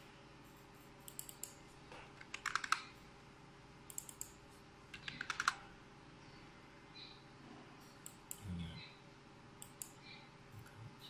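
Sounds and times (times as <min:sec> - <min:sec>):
computer keyboard typing: 0:00.5 - 0:01.6, 0:02.2 - 0:03.0, 0:03.9 - 0:05.6.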